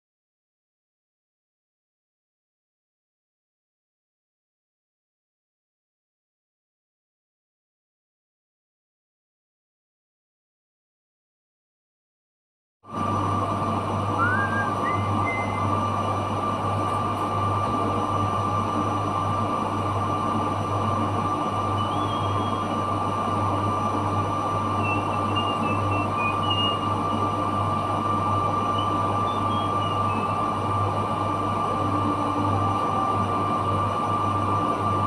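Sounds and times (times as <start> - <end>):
machinery hum with whine: 12.9 - 35.0.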